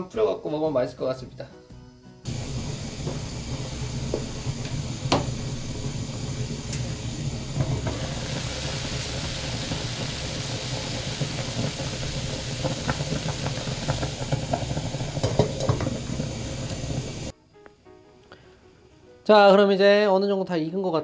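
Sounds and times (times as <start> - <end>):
pot boiling and bubbling: 2.3 - 17.3
steam hissing: 2.3 - 17.3.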